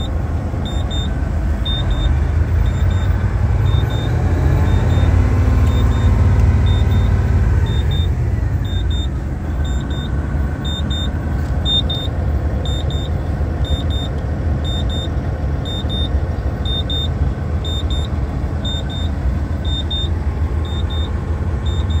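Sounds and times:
diesel truck engine idling: 0.0s - 22.0s
short high double beep: 1.7s - 12.1s, 17.7s - 22.0s.

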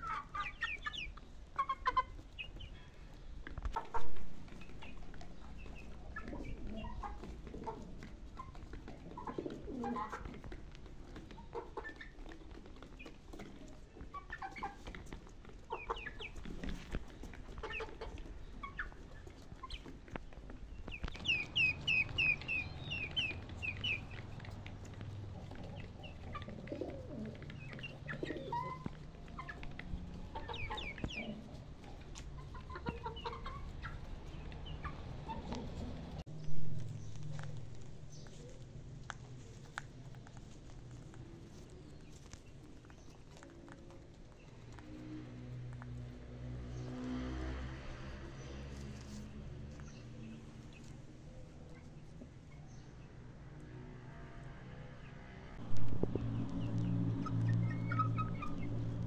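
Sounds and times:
chickens clucking: 0.0s - 53.8s, 55.6s - 59.0s
pigeons cooing: 4.6s - 12.5s, 21.0s - 36.2s.

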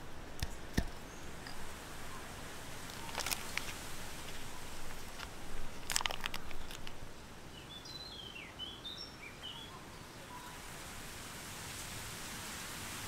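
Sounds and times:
bird chirping: 0.0s - 10.6s
forest ambience: 0.0s - 13.0s
foil wrapper crinkling: 2.7s - 7.1s.

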